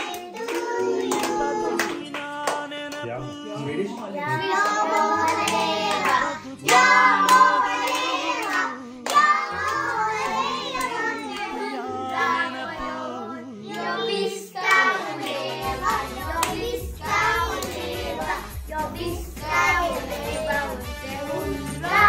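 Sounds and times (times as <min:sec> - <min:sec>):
children singing: 0:00.0 - 0:02.2, 0:03.6 - 0:22.0
hand clapping: 0:00.0 - 0:03.0, 0:04.4 - 0:11.6, 0:14.6 - 0:21.2
musical accompaniment: 0:14.9 - 0:22.0.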